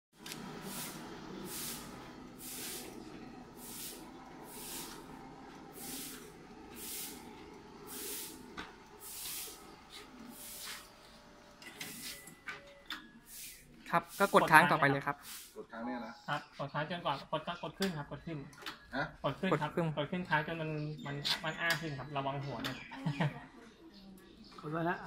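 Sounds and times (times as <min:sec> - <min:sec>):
stairlift motor hum: 0:00.1 - 0:12.8
pulsing hiss: 0:00.2 - 0:12.2.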